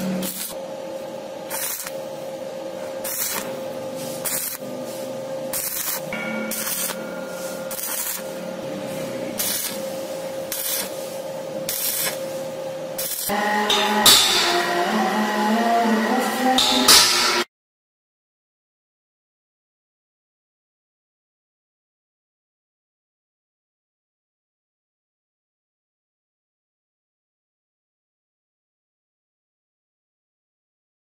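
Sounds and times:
welding arc crackling and hissing: 0.0 - 17.5.

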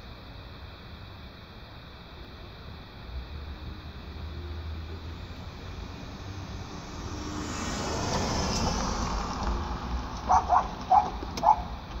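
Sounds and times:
street traffic: 0.0 - 12.0
vehicle passing: 3.2 - 11.8.

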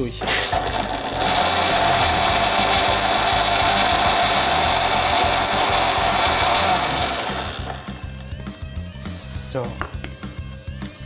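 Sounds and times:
blender motor running: 0.0 - 8.2.

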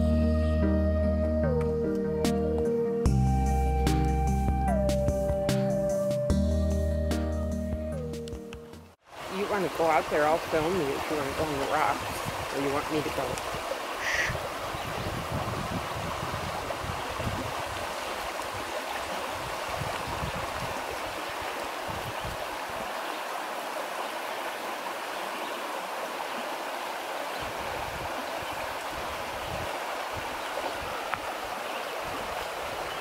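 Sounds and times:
brook flowing over stones: 9.0 - 33.0.

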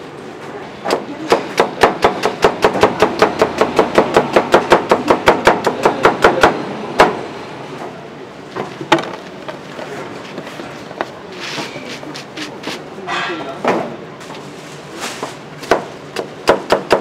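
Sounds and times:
knife chopping on a board: 0.9 - 7.2, 15.2 - 17.0.

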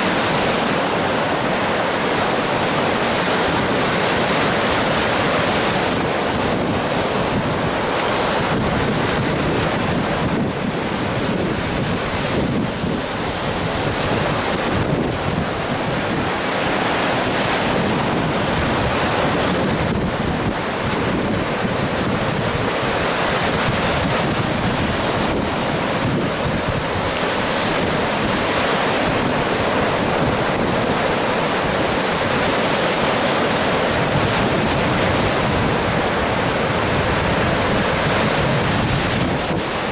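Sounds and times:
surf breaking on beach: 0.0 - 39.9
wind on microphone: 0.0 - 39.9.

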